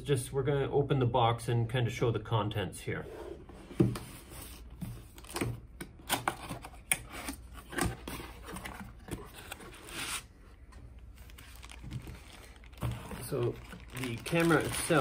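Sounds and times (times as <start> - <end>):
cardboard box being opened: 11.2 - 15.0.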